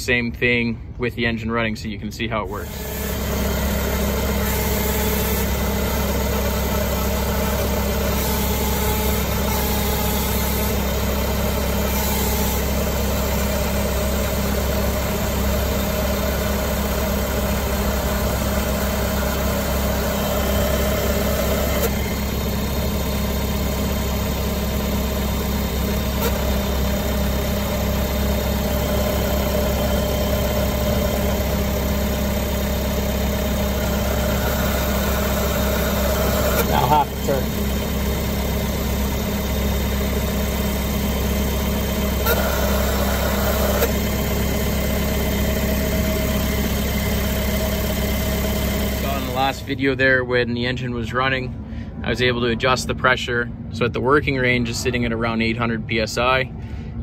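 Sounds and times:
tracked vehicle engine idling: 0:00.0 - 0:57.0.

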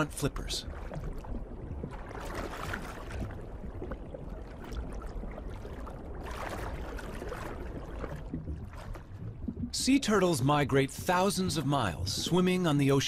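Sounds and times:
underwater rushing water: 0:00.0 - 0:13.0.

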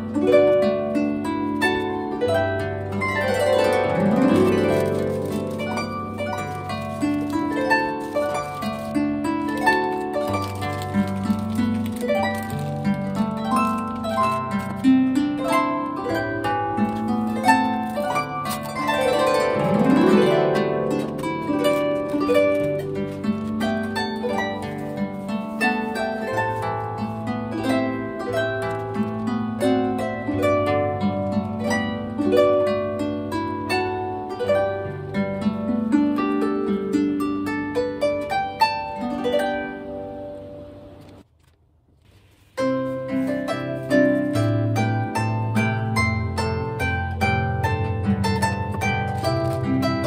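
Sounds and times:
solo harp music: 0:00.0 - 0:41.3, 0:42.2 - 0:50.0.

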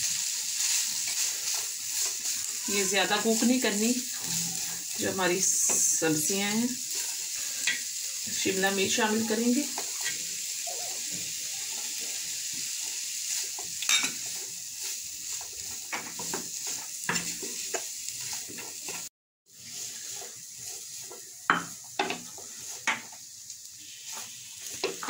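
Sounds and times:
food sizzling in a hot pan: 0:00.0 - 0:25.0
wooden spatula scraping a pan: 0:00.0 - 0:25.0.

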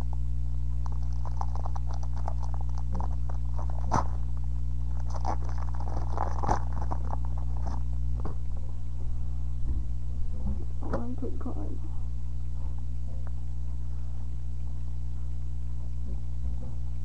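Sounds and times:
low hum: 0:00.0 - 0:17.0
foil wrapper crinkling and tearing: 0:00.8 - 0:07.9.

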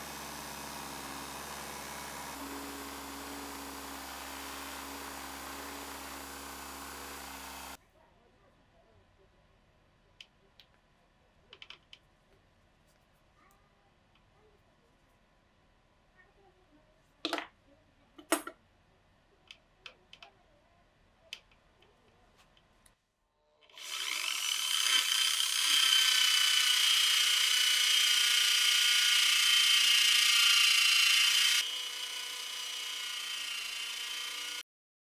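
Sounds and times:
angle grinder high whine: 0:00.0 - 0:07.8, 0:23.9 - 0:34.6.

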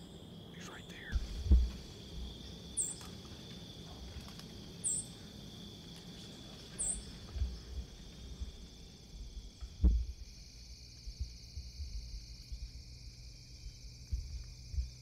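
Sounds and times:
insects droning: 0:00.0 - 0:15.0
low thumps: 0:01.2 - 0:02.2, 0:09.6 - 0:10.2.

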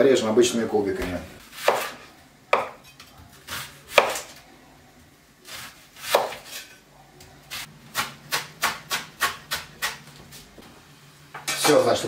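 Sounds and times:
knife chopping onion on wooden board: 0:01.5 - 0:02.8, 0:03.5 - 0:04.3, 0:05.5 - 0:06.6, 0:07.9 - 0:10.0.

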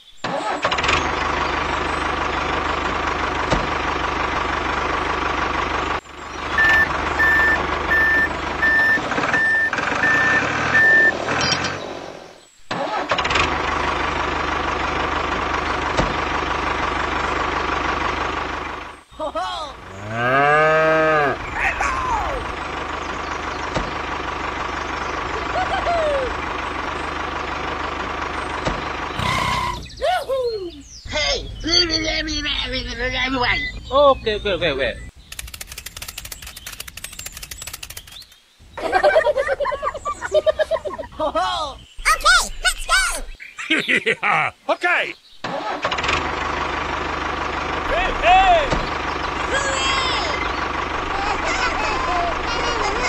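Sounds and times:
tractor engine running: 0:00.2 - 0:30.0, 0:30.8 - 0:42.5, 0:45.4 - 0:53.0
reversing beeps: 0:06.6 - 0:11.2, 0:33.4 - 0:33.8.

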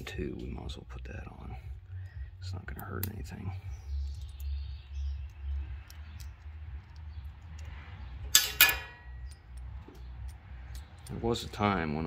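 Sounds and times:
low steady hum: 0:00.0 - 0:12.0
small parts clicking: 0:02.0 - 0:11.3
sharp metallic clinks: 0:03.9 - 0:11.3.

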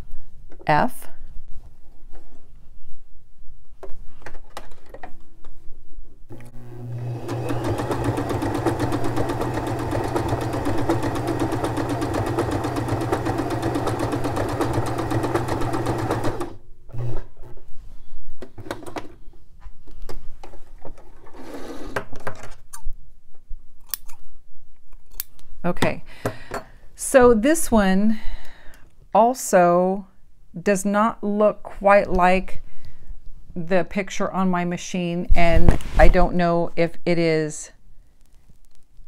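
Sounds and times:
sewing machine running: 0:06.3 - 0:17.3.

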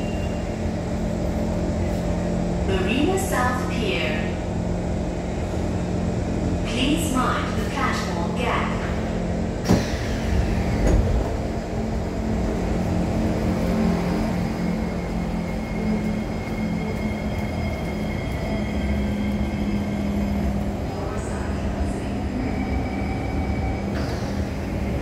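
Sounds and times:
train electrical hum: 0:00.0 - 0:25.0
train doors clunk and whine: 0:06.7 - 0:25.0.

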